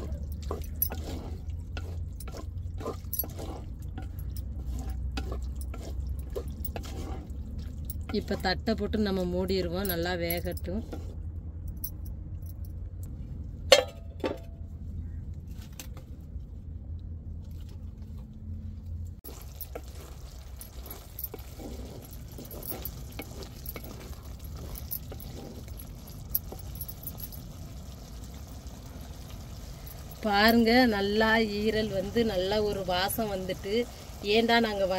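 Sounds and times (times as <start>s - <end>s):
faint crackles of simmering: 19.2s - 34.9s.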